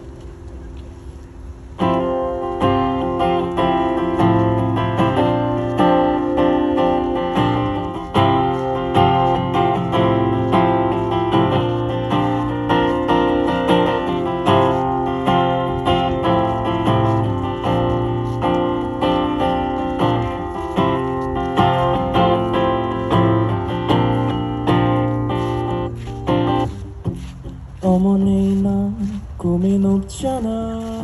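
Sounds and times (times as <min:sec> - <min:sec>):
acoustic guitar strumming: 0:01.8 - 0:29.2.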